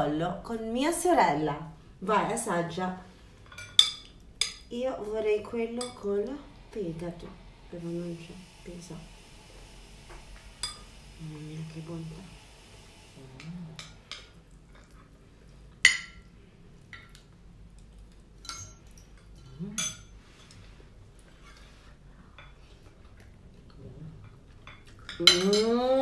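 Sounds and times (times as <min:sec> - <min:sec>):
cutlery clinking on dishes: 0:18.4 - 0:20.6, 0:24.7 - 0:25.8.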